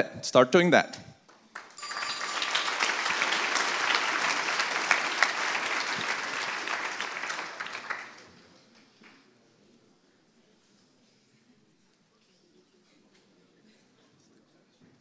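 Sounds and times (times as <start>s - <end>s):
audience applauding: 1.3s - 9.2s.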